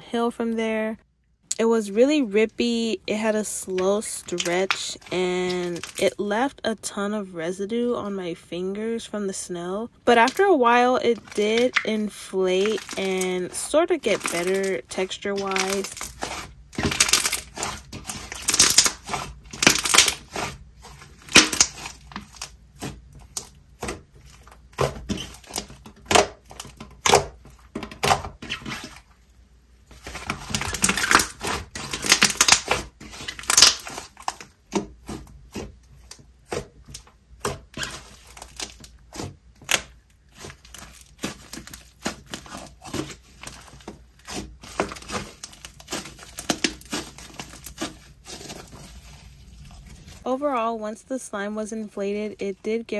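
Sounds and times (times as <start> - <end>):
sticky crackles and pops: 3.7 - 6.2, 10.1 - 29.2, 29.9 - 50.3
slime squished by hand: 11.1 - 29.2, 29.8 - 50.3.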